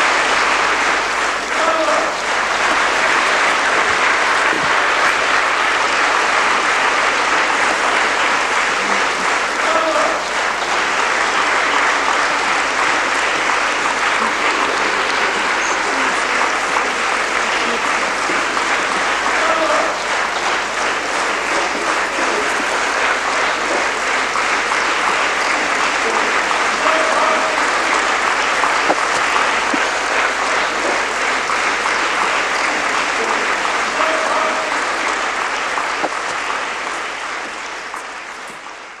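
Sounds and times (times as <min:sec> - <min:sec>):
audience applauding: 0:00.0 - 0:39.0.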